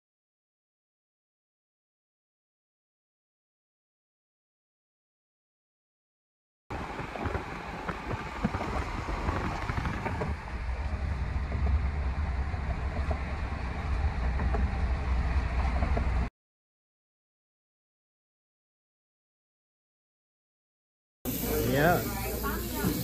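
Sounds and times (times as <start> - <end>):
car cabin road rumble: 6.7 - 16.3
wind: 6.7 - 16.3.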